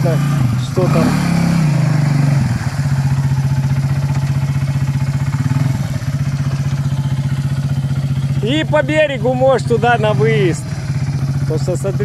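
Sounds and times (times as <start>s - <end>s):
atv engine revving and idling: 0.0s - 12.0s.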